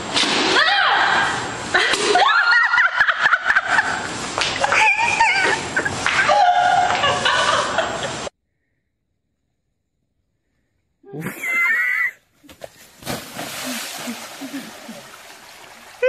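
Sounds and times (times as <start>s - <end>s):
people laughing: 1.8s - 8.3s, 14.0s - 15.1s.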